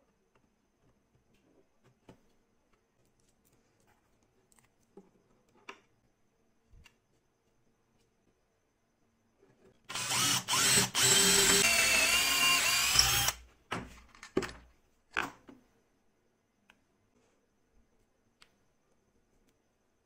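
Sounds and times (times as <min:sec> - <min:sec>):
power drill boring into wood: 0:09.9 - 0:13.4.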